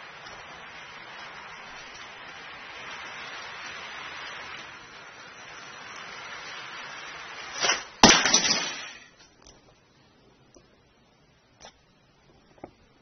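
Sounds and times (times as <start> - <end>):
toy train clattering: 0.0 - 9.3
toy train crashing: 0.0 - 9.3.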